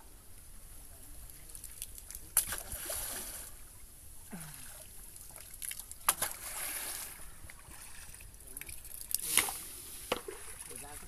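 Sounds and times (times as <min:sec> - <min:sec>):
sharp water splashes: 0:01.6 - 0:03.5, 0:05.2 - 0:07.2
bamboo pole slapping water: 0:01.8 - 0:03.2, 0:05.4 - 0:07.0, 0:08.6 - 0:10.8.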